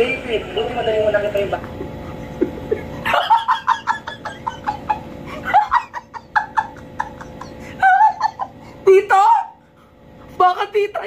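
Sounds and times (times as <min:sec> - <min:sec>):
man laughing hard: 0:01.8 - 0:08.7.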